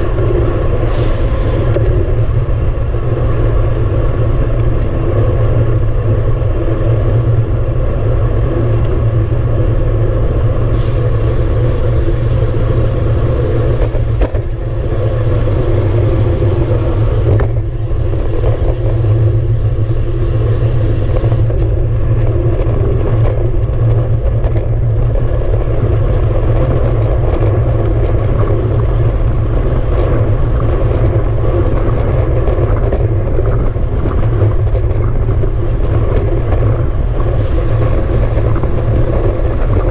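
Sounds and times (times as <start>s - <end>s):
bike tyre rumble on road: 0.0s - 39.9s
wind rushing over microphone: 0.0s - 39.9s
bright hiss: 0.8s - 1.8s, 10.7s - 21.5s, 37.4s - 39.9s.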